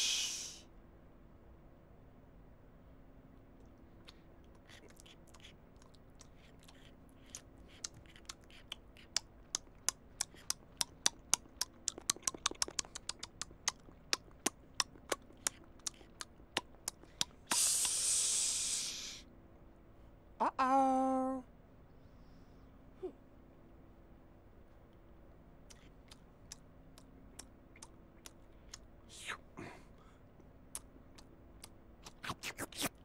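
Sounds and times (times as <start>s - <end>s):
loud hiss: 0.0s - 0.7s, 17.5s - 19.3s
toast crunching and chewing: 4.0s - 16.3s.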